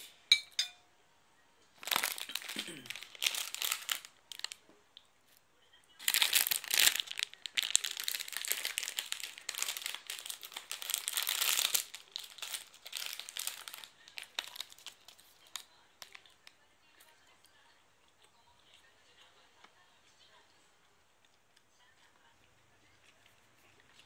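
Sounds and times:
plastic wrapper crinkling: 1.8s - 4.6s, 6.0s - 16.6s.

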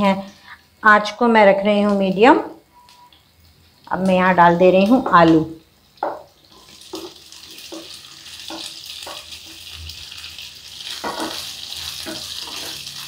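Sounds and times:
potatoes sizzling in hot oil: 3.2s - 13.0s
wooden spatula knocking pan: 6.0s - 6.3s, 6.9s - 9.4s, 11.0s - 12.7s.

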